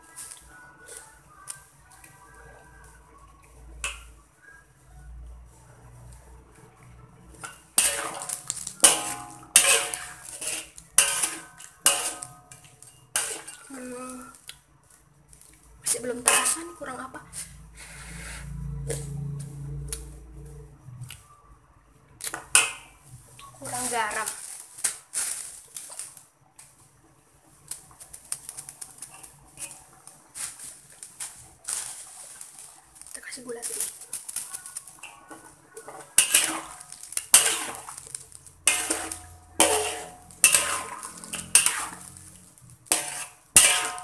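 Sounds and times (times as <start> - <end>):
metal spatula scraping a wok: 5.6 - 14.4, 15.8 - 20.2, 22.2 - 26.2, 28.5 - 44.0.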